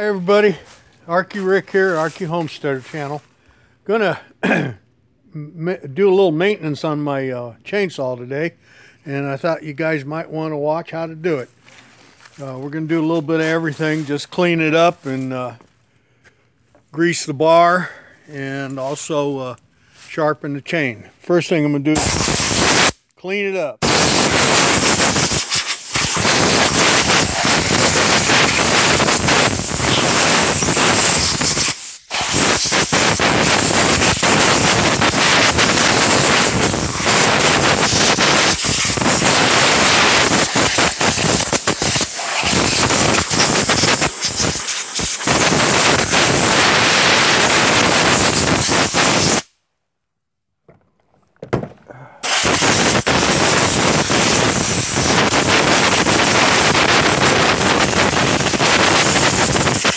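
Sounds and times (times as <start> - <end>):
compressed air blow gun hissing: 22.0 - 23.0, 23.8 - 49.5, 52.2 - 59.9.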